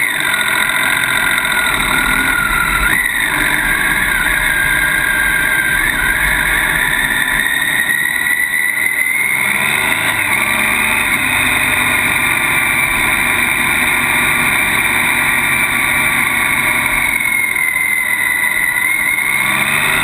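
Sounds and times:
motorcycle engine running: 0.0s - 8.6s, 9.3s - 20.0s
wind rush: 1.1s - 8.4s.

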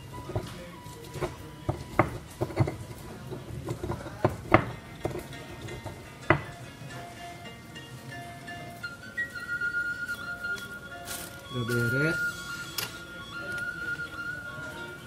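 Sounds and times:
chopping on wooden cutting board: 1.2s - 2.8s, 3.7s - 5.2s.

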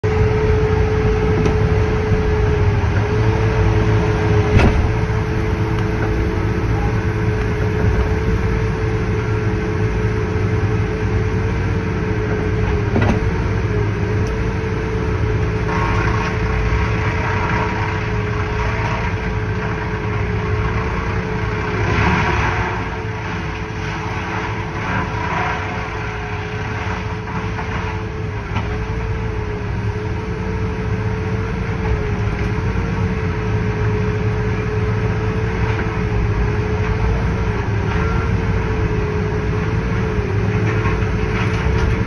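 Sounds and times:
high whine: 0.0s - 23.6s
heavy diesel machinery running: 0.0s - 42.0s
logs scraping on metal: 15.4s - 29.0s, 34.8s - 42.0s.

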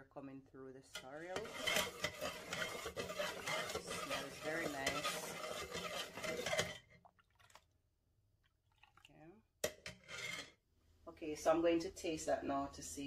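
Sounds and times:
spoon stirring liquid in pot: 0.8s - 7.7s, 8.4s - 10.6s.

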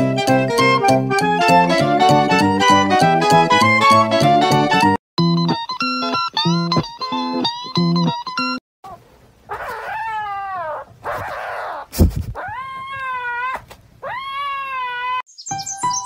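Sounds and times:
kitten meowing: 9.5s - 15.2s.

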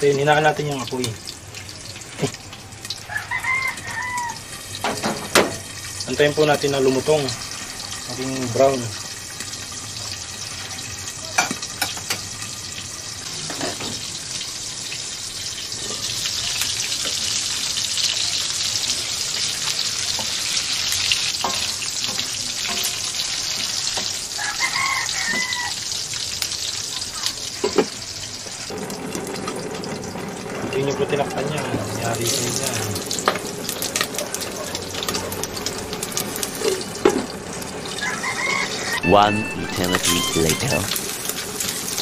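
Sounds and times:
meat sizzling in oil: 0.0s - 42.0s
short high-pitched call: 38.8s - 41.0s.

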